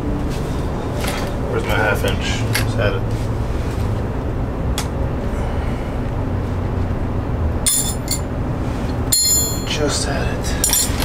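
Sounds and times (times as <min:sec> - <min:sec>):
steady low hum: 0:00.0 - 0:11.0
metal hand tools clinking: 0:07.7 - 0:08.3, 0:09.1 - 0:09.8, 0:10.6 - 0:11.0
ringing metallic clink: 0:07.7 - 0:08.3, 0:09.1 - 0:09.8, 0:10.6 - 0:11.0.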